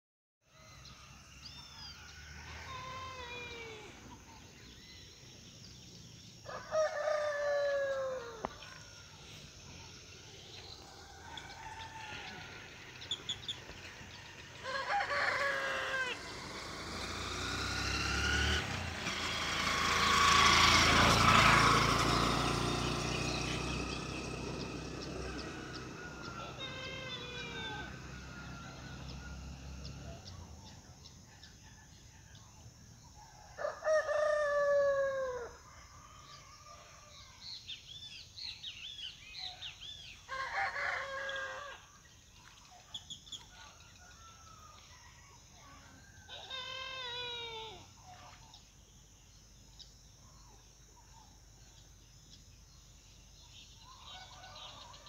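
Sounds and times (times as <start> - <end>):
rooster crowing: 0.5 - 4.0, 6.4 - 9.0, 10.6 - 13.1, 14.1 - 17.3, 24.5 - 30.3, 33.2 - 37.6, 39.7 - 42.0, 43.5 - 47.9, 53.8 - 55.0
vehicle passing by: 0.6 - 33.0
small birds chirping: 0.6 - 33.5, 36.0 - 55.0.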